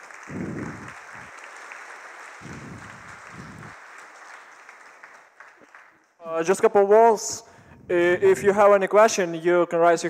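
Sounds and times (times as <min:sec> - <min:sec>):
audience clapping: 0:00.0 - 0:06.9
low rumbles: 0:00.3 - 0:01.1, 0:02.4 - 0:03.7.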